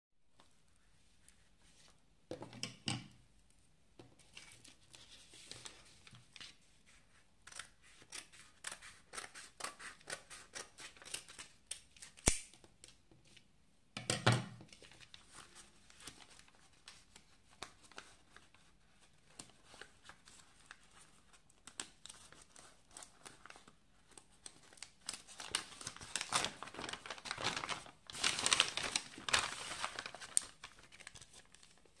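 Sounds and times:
paper crinkling and rustling: 4.2s - 7.0s, 14.7s - 32.0s
envelope tearing: 24.4s - 31.8s.

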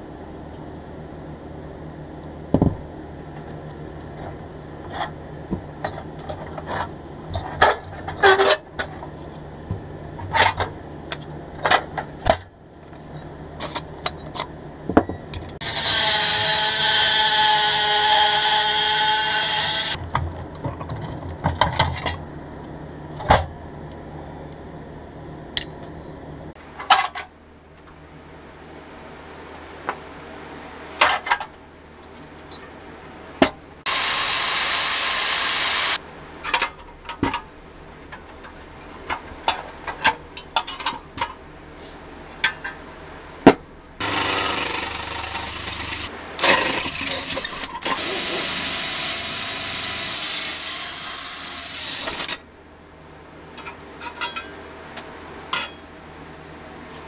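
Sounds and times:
power tool running: 15.6s - 20.0s, 33.9s - 36.0s, 44.0s - 52.4s.

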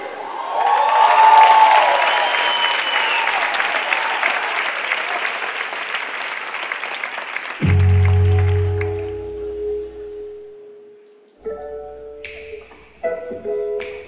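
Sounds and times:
shouts from audience: 0.0s - 4.7s
audience applauding and cheering: 0.0s - 9.5s
music with low sustained note: 7.7s - 13.8s.

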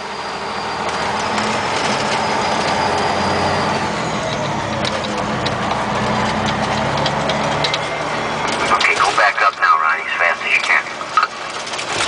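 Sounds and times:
road noise: 0.0s - 12.0s
truck engine running: 0.0s - 12.0s
small rattles and clicks: 4.8s - 7.8s, 10.5s - 12.0s.

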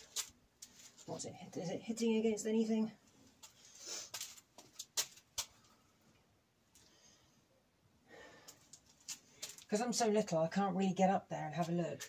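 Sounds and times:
faint rustling: 0.0s - 1.4s.

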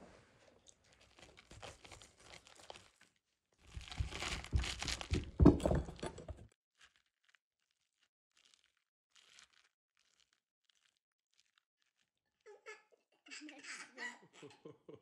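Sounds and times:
potato skin crackling and crunching: 0.6s - 5.9s, 6.7s - 12.8s.

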